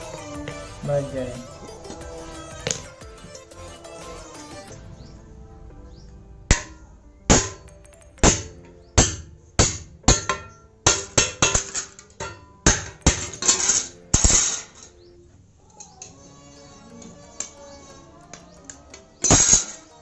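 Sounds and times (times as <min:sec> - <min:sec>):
hammer striking metal punch: 0:06.5 - 0:14.5.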